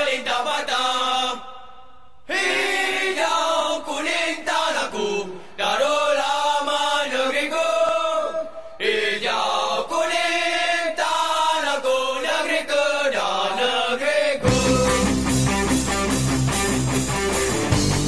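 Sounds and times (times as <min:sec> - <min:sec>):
men singing chant in unison: 0:00.0 - 0:01.7, 0:02.3 - 0:15.5
rock band with electric guitar: 0:14.4 - 0:18.0.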